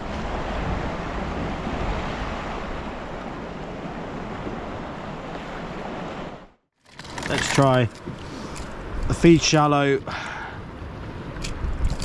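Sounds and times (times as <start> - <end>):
wind buffeting microphone: 0.0 - 6.4, 10.6 - 12.0
sea water rushing: 0.0 - 11.5.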